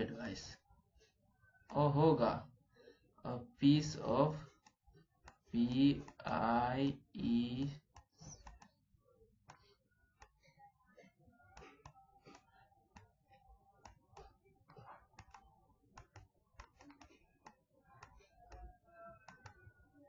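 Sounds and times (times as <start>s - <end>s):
stylus tapping on tablet: 7.2s - 8.8s, 9.4s - 10.6s, 11.4s - 19.8s.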